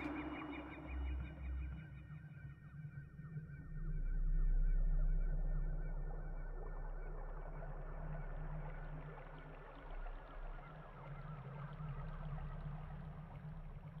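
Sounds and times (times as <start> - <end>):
birds chirping: 0.0 - 1.6.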